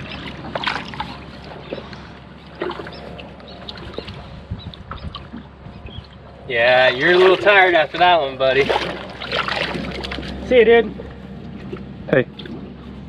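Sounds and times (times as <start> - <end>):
water sloshing and splashing: 0.0 - 13.0.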